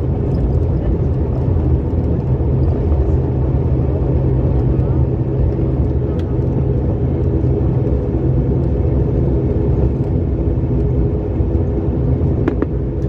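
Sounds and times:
turboprop engines droning: 0.0 - 13.0.

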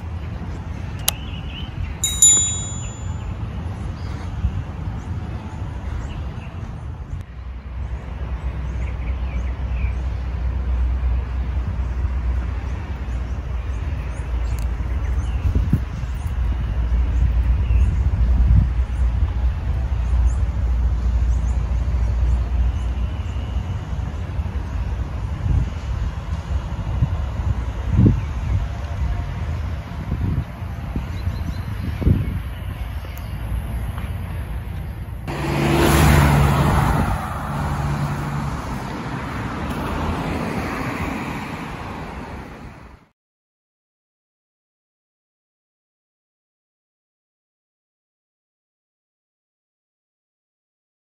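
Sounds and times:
steady traffic noise: 0.0 - 43.1
wind buffeting microphone: 11.4 - 22.4, 24.0 - 34.6
car passing close by: 35.3 - 43.0.

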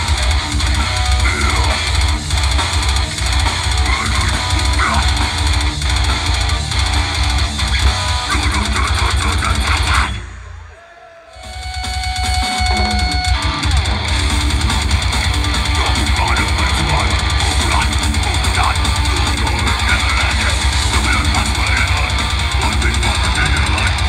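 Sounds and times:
fast drums: 0.0 - 10.4, 11.3 - 24.0
bass guitar: 0.0 - 10.7, 11.5 - 24.0
distorted guitars: 0.0 - 24.0
growled vocals: 0.6 - 2.3, 3.8 - 5.4, 15.6 - 24.0.

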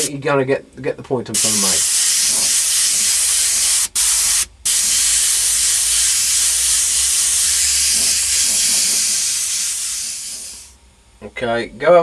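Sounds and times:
airbrush hissing: 1.4 - 10.8.

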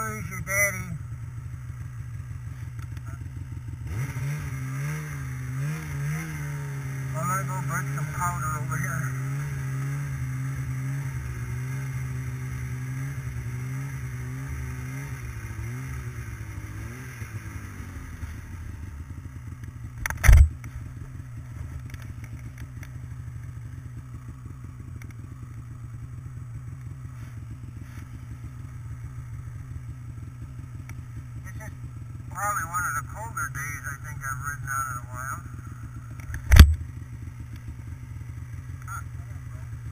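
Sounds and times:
snowmobile engine running: 0.0 - 39.9
loud thump: 36.4 - 36.8.

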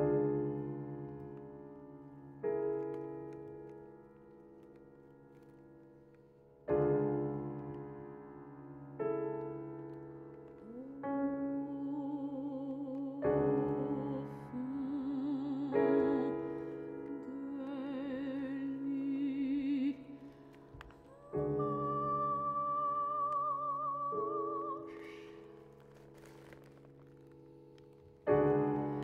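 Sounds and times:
piano chords: 0.0 - 29.0
soprano singing with vibrato: 10.6 - 25.5.

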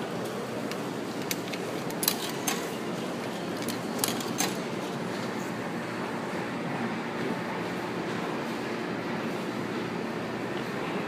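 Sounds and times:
steady background noise: 0.0 - 11.0
coins clicking into slot: 1.2 - 2.8, 3.6 - 4.7.

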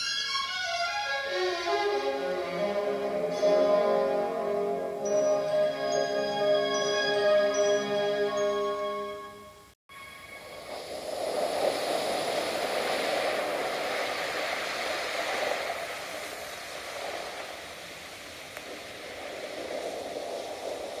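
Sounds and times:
steady rushing noise: 9.9 - 21.0.

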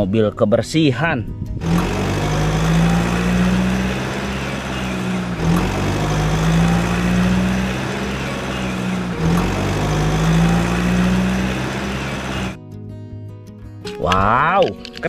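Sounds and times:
truck engine idling: 1.6 - 12.6.

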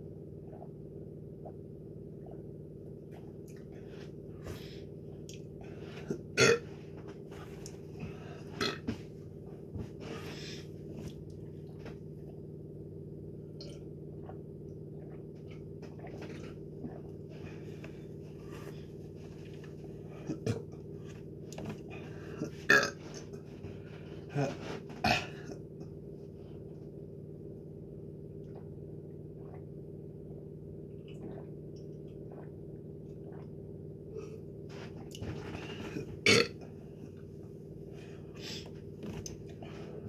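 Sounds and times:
low hum: 0.0 - 40.0
man burping: 6.4 - 6.6, 22.4 - 23.0, 24.3 - 25.5, 36.2 - 36.6.

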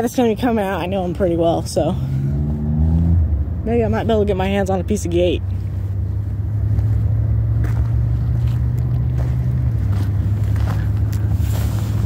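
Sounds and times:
low engine drone: 0.0 - 12.0.

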